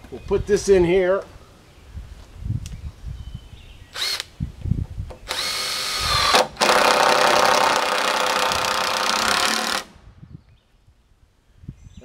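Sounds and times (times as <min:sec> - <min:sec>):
cordless drill into wood: 0:03.9 - 0:04.3, 0:05.2 - 0:10.0.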